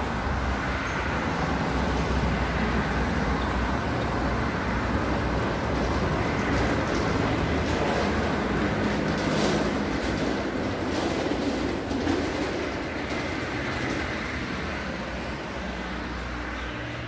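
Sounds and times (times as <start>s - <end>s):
casters rumbling on concrete: 4.8s - 14.9s.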